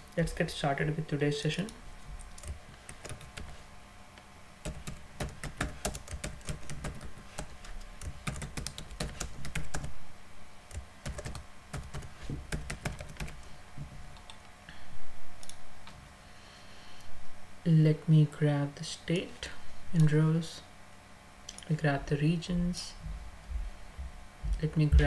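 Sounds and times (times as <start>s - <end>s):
typing on computer keyboard: 2.2s - 3.6s, 4.6s - 9.9s, 10.7s - 13.4s.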